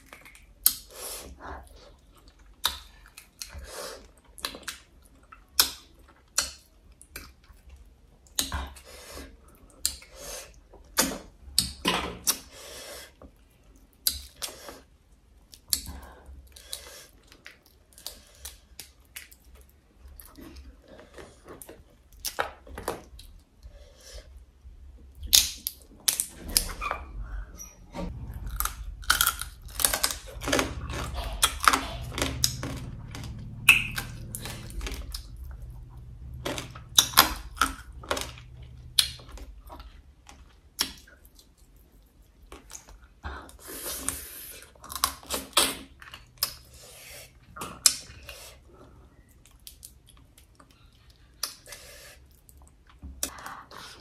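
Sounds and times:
chewing and crunching: 0:28.1 - 0:54.0.

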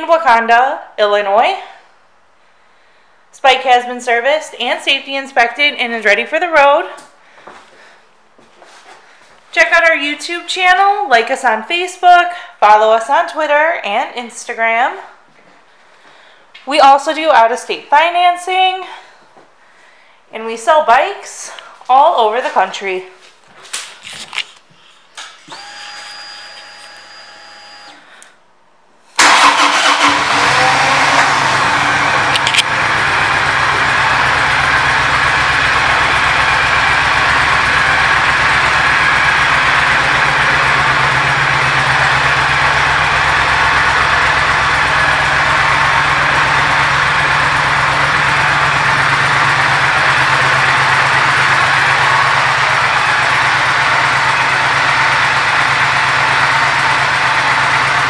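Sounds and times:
faint ignition whine: 0:29.2 - 0:58.0
motorcycle engine starting and idling: 0:29.2 - 0:58.0.

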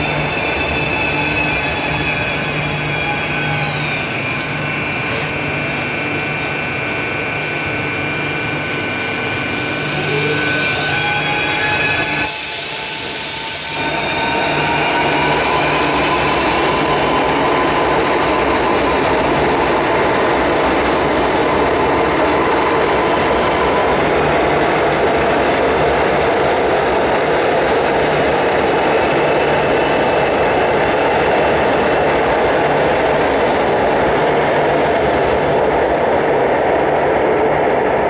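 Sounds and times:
train cars rumbling on rails: 0:00.0 - 0:38.0
train motor whine: 0:00.6 - 0:19.4
hiss of air: 0:12.0 - 0:13.9.

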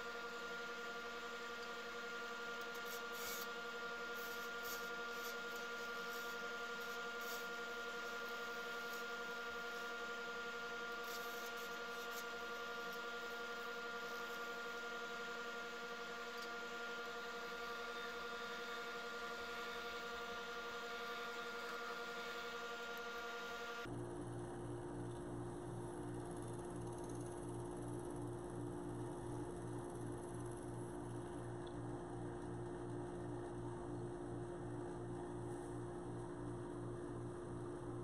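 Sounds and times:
wood lathe motor whine: 0:00.0 - 0:23.9
turning tool scratching: 0:00.2 - 0:23.9.

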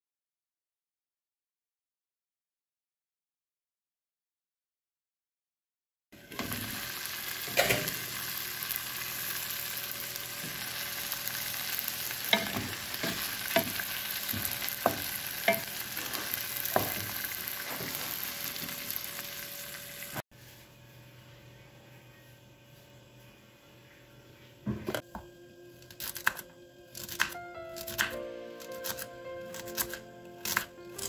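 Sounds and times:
vegetables sizzling in a pan: 0:06.2 - 0:20.2
faint hum: 0:18.2 - 0:27.3.

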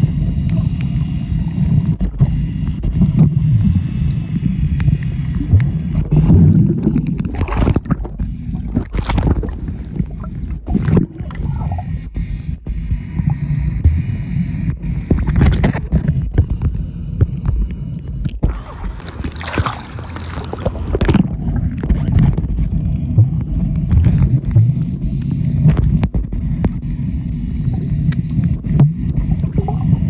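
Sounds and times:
boat engine rumble: 0:00.0 - 0:30.0
rush of water: 0:18.4 - 0:22.1.

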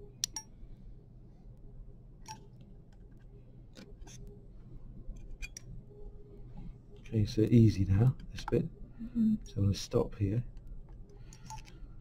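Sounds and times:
surgical instruments clicking: 0:10.5 - 0:11.9.

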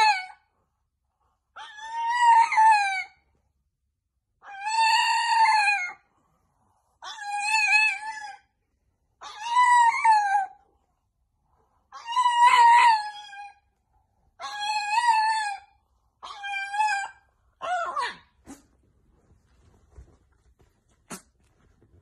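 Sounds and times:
dog howling: 0:01.6 - 0:03.2, 0:04.4 - 0:06.0, 0:09.2 - 0:10.6, 0:11.9 - 0:13.6, 0:14.4 - 0:18.3.

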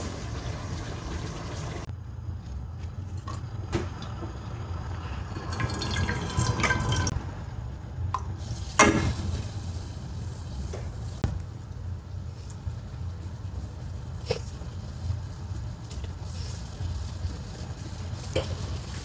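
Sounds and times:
water pouring into a metal pot: 0:04.6 - 0:07.2.

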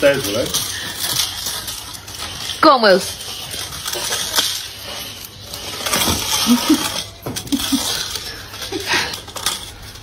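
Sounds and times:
plastic hoop scraping on stone: 0:00.0 - 0:10.0.

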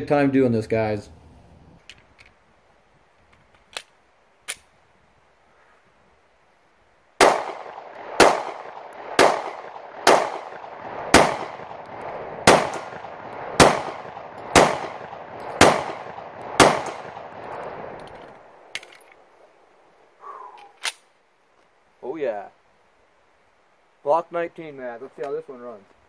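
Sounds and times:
pistol shots with ringing echo: 0:07.2 - 0:17.9
small metallic clicks: 0:17.4 - 0:19.2.

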